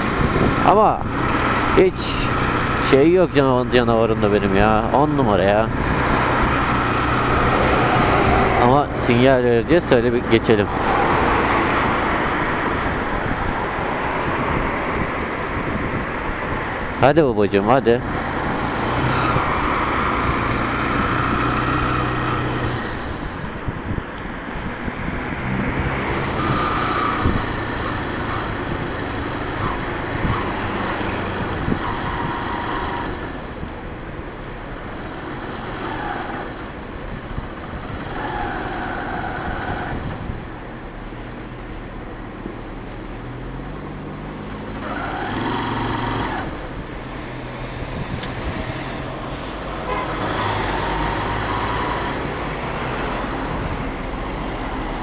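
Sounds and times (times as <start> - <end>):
road noise: 0.0 - 55.0.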